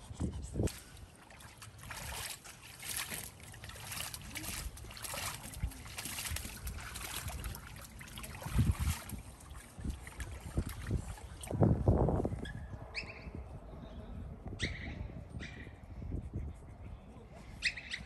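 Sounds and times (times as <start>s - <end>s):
dog splashing in water: 0.7s - 11.5s.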